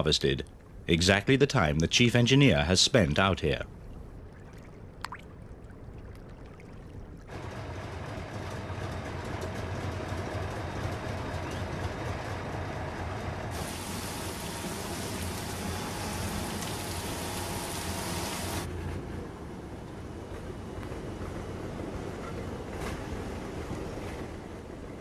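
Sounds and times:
machine humming: 7.3 - 18.7
water pouring and splashing: 13.5 - 18.7.

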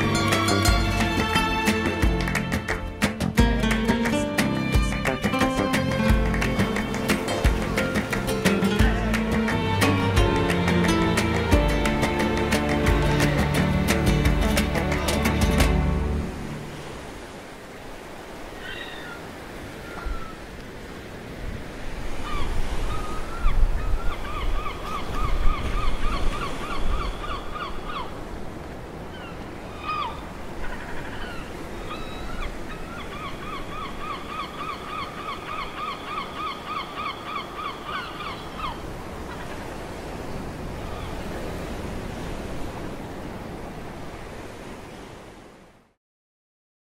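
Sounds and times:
surf washing over rocks: 0.0 - 23.0.

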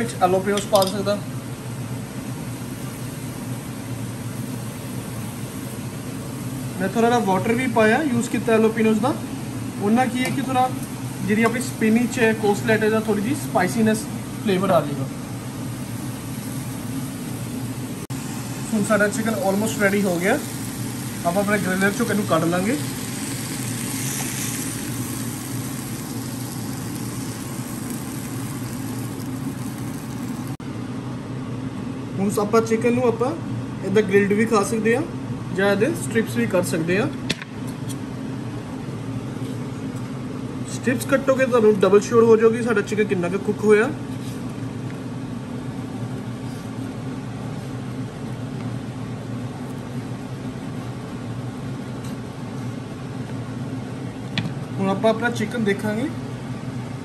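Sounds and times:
low mechanical hum with hiss: 0.0 - 57.0
meat sizzling on a grill: 15.6 - 30.6.

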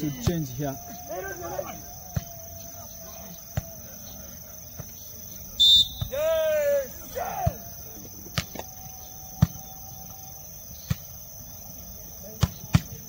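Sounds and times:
volleyball struck thuds: 12.3 - 13.0.

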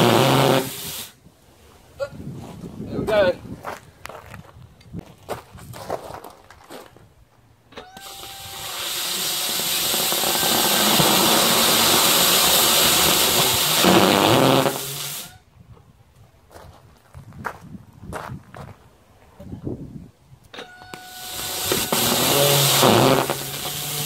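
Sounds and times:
rocket engine jet hiss: 0.0 - 1.2, 7.8 - 15.4, 21.0 - 24.0.

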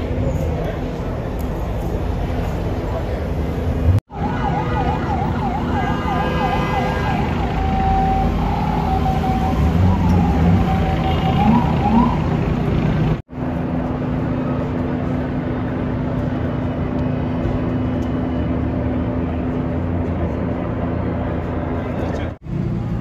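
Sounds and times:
street traffic noise: 0.0 - 23.0
emergency siren wailing: 4.0 - 12.8.

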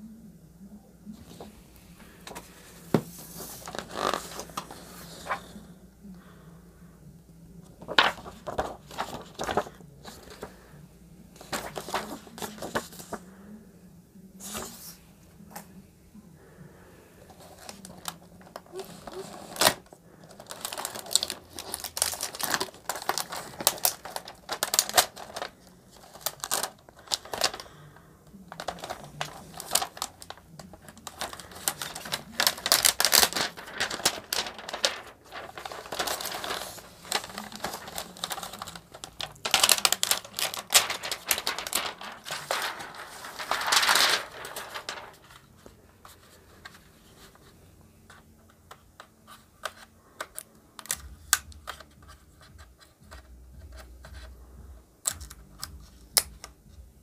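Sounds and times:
plastic packaging crinkling: 2.1 - 5.6, 7.9 - 10.5, 11.4 - 13.2, 17.4 - 27.8, 28.5 - 46.8.

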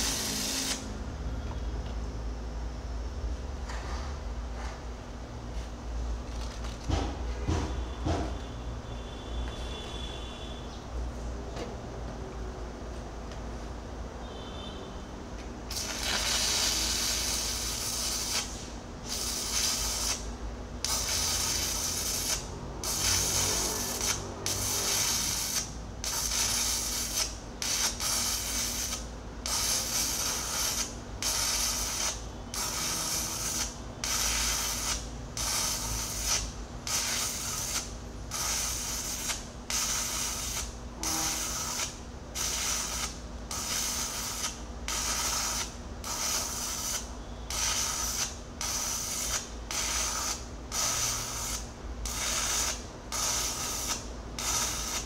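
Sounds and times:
welding arc crackling and hissing: 0.0 - 1.0, 15.6 - 55.0.

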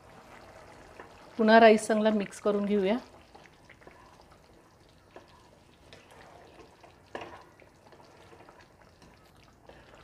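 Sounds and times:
liquid sloshing and simmering: 0.0 - 10.0
spatula scraping a pan: 5.1 - 9.8.

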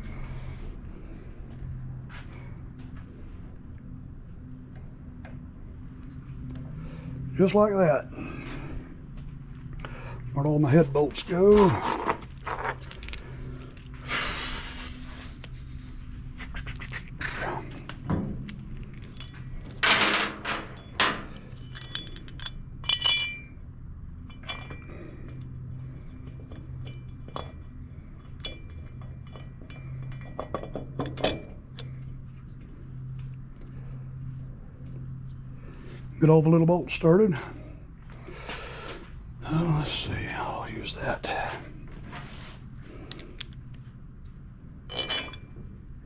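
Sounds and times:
steady low hum: 0.0 - 46.0
metal bolts clinking: 11.1 - 13.9, 16.3 - 23.6, 24.2 - 25.4, 26.1 - 32.2, 44.9 - 45.6.

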